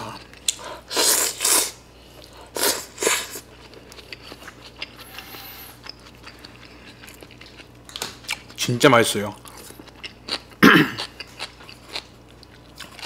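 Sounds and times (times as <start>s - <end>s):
chewing with wet clicks: 0.1s - 0.8s, 3.4s - 5.2s, 5.8s - 8.6s, 9.3s - 13.0s.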